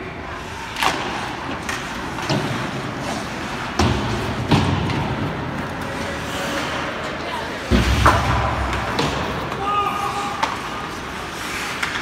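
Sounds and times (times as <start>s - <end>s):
ice rink hall noise: 0.0s - 12.0s
hockey sticks and puck knocking: 0.8s - 6.0s, 7.7s - 12.0s.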